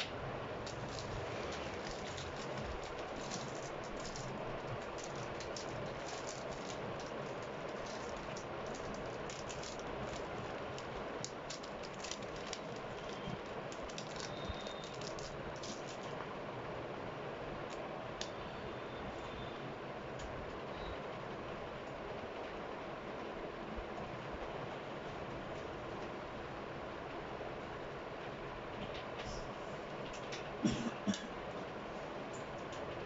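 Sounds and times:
steady background hiss: 0.0s - 33.0s.

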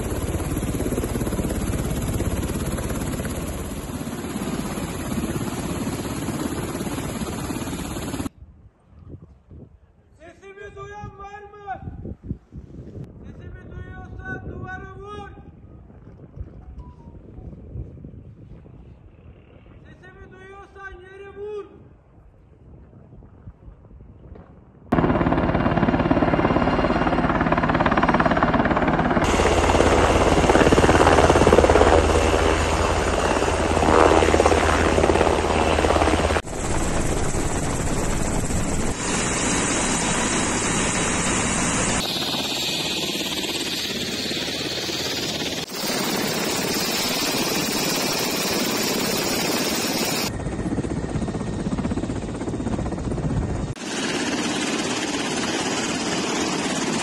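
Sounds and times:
helicopter engine and rotor: 0.0s - 8.3s, 24.9s - 57.0s.

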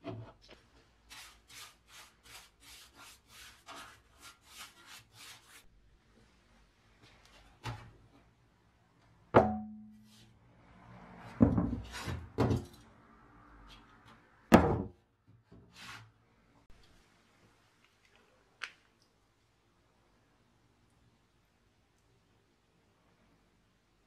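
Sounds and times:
metal deck thudding on workbench: 9.4s - 9.8s.

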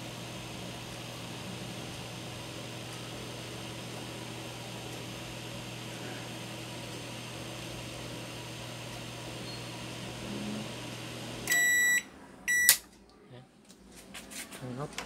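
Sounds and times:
microwave oven humming: 0.0s - 13.7s
loud timer beep: 11.5s - 12.8s.

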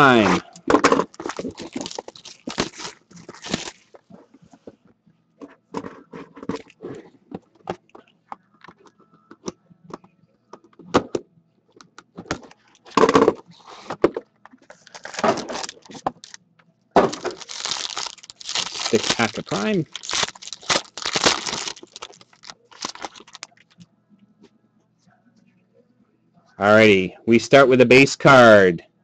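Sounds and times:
card pack wrapping crinkling: 0.0s - 4.0s, 14.6s - 16.4s, 17.0s - 23.7s.

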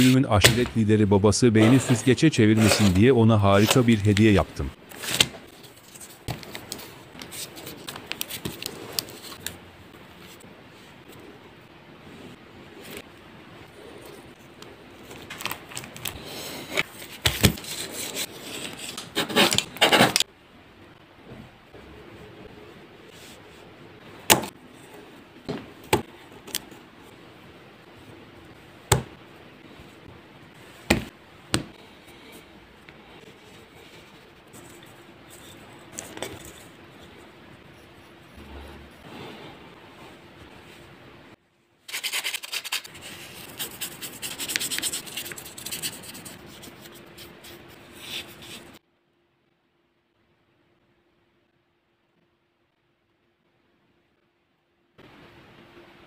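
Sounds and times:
clay slabs tapping and knocking: 30.9s - 31.8s
faint steady hiss: 42.8s - 56.0s.

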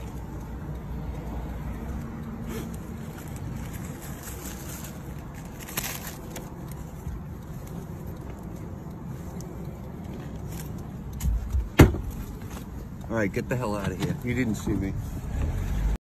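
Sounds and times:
leather jacket rustling: 2.6s - 7.2s.

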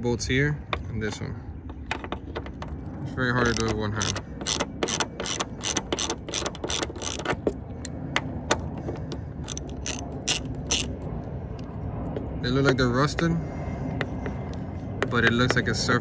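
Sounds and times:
socket ratchet clicking: 3.4s - 7.5s, 9.4s - 10.9s.

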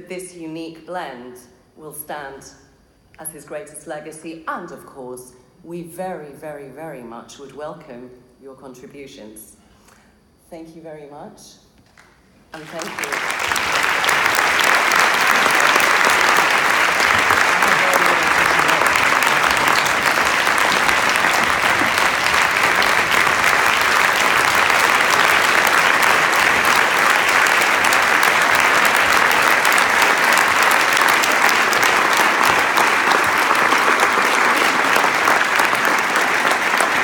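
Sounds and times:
audience applauding: 12.6s - 37.0s.

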